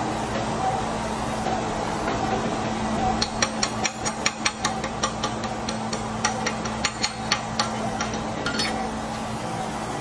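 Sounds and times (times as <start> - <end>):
low shop hum: 0.0 - 10.0
chipping hammer tapping metal: 3.2 - 8.7.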